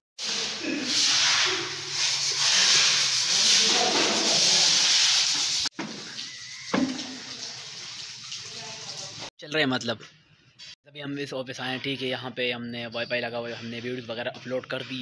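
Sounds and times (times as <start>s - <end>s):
broom scratching on tiled floor: 0.2s - 5.7s
knock: 6.7s - 7.2s.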